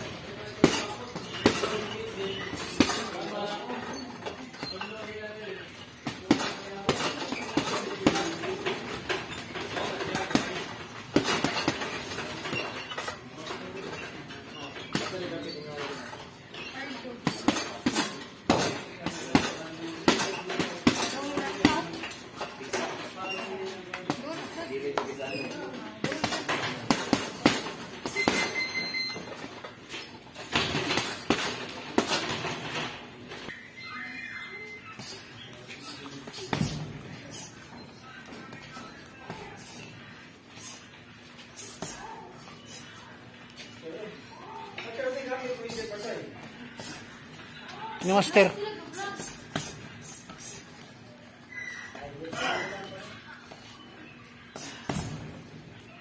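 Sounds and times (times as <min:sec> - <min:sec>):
boxing gloves punching heavy bag: 0:26.0 - 0:28.6.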